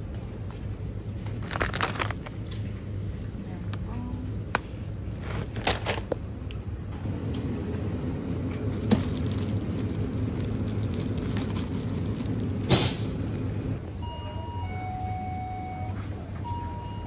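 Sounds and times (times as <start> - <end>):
low shop hum: 0.0 - 17.0
plastic bags crinkling: 1.3 - 2.6, 5.1 - 6.2, 8.7 - 13.8.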